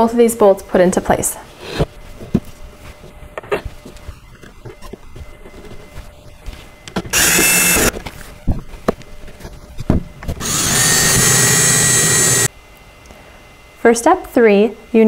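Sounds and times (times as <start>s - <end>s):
cordless drill driving bolts: 7.1s - 7.9s, 10.4s - 12.5s.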